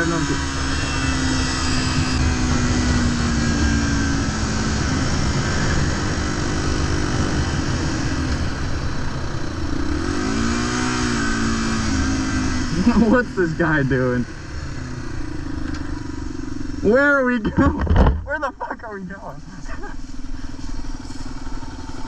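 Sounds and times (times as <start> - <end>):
motorcycle engine running: 0.0 - 22.0
wind and road noise: 0.0 - 22.0.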